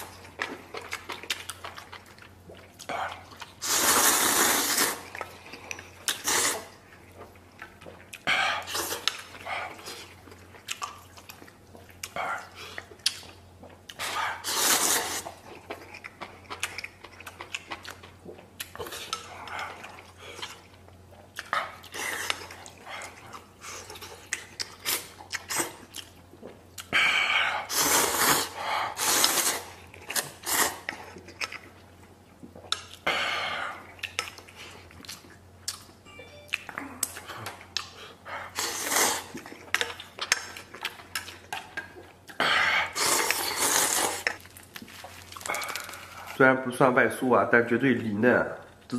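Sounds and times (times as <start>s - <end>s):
person chewing: 0.0s - 46.4s
person slurping noodles: 3.0s - 5.1s, 6.1s - 6.8s, 14.0s - 15.4s, 26.9s - 31.0s, 38.4s - 39.4s, 42.4s - 44.4s.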